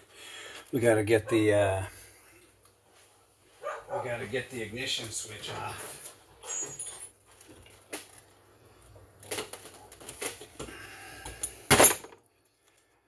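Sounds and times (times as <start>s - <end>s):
metal parts clattering: 11.3s - 12.2s.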